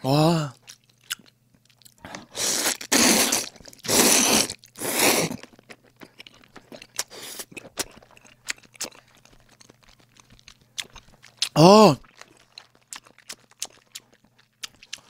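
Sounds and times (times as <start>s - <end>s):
wet chewing: 0.6s - 15.0s
noodles slurped: 2.2s - 5.6s.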